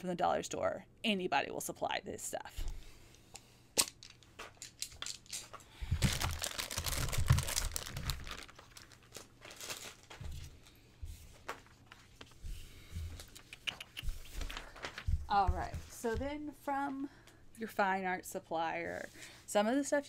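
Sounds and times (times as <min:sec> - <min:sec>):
plastic packaging crinkling: 0:03.8 - 0:10.7.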